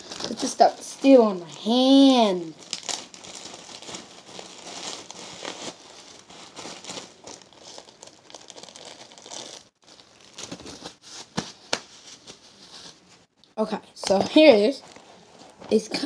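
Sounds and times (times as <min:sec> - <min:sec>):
paper tissue crinkling: 0:01.6 - 0:13.2.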